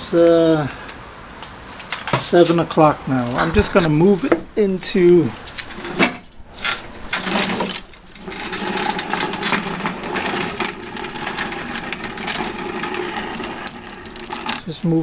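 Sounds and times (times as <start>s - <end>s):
lawn mower rolling on concrete: 1.7s - 15.0s
rattling clicks: 5.5s - 14.7s.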